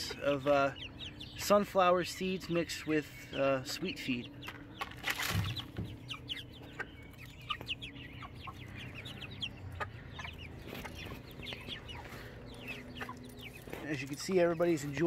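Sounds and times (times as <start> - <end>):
chicks peeping: 0.0 - 15.0
beaks pecking plastic trays: 3.6 - 15.0.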